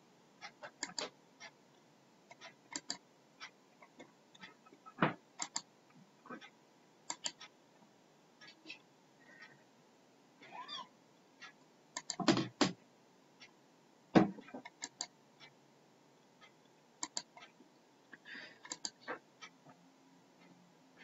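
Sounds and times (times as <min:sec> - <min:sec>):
computer mouse clicking: 0:00.8 - 0:01.1, 0:02.3 - 0:03.0, 0:05.4 - 0:05.7, 0:07.1 - 0:07.5, 0:12.0 - 0:12.8, 0:14.6 - 0:15.1, 0:17.0 - 0:17.5, 0:18.6 - 0:19.1
knocks: 0:14.2 - 0:14.5.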